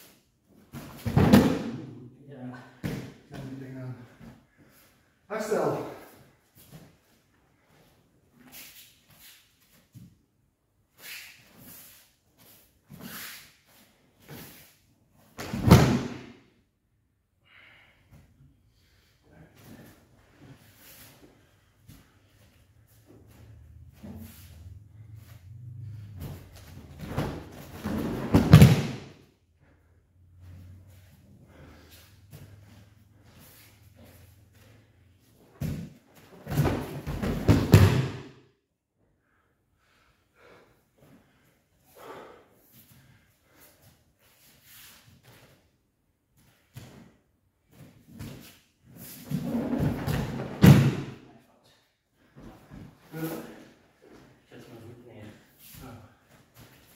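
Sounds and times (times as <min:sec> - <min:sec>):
breakfall slap on mat: 0:15.4 - 0:16.3, 0:27.0 - 0:29.1, 0:36.5 - 0:38.3, 0:50.2 - 0:51.2
body slamming onto mat: 0:36.4 - 0:38.3, 0:49.7 - 0:51.2.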